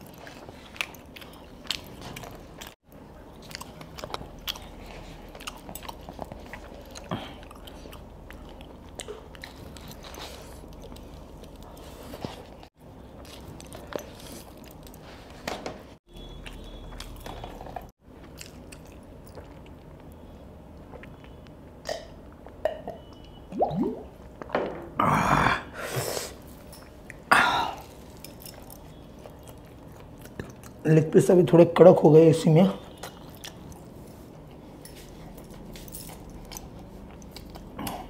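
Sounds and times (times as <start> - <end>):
person chewing and biting: 0.0 - 15.0.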